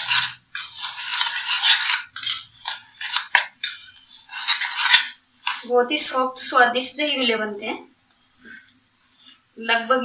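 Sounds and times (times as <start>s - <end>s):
whisk scraping in a bowl: 0.0s - 5.7s.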